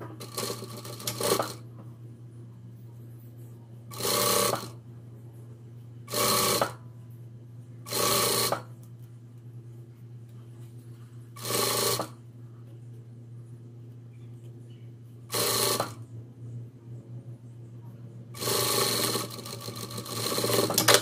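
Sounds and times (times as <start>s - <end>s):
steady low hum: 0.0s - 21.0s
sewing machine stitching: 0.2s - 1.6s, 3.9s - 4.7s, 6.1s - 6.8s, 7.9s - 8.7s, 11.4s - 12.2s, 15.3s - 16.0s, 18.4s - 21.0s.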